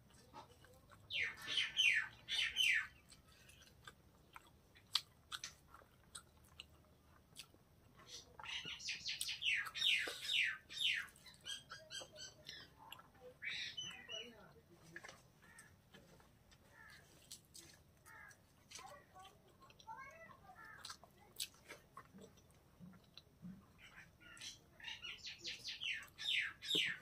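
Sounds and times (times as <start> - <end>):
bird chirping: 0.2 - 3.6, 8.0 - 14.6, 22.2 - 27.0
chewing and wet mouth clicks: 2.9 - 7.6, 17.2 - 23.7.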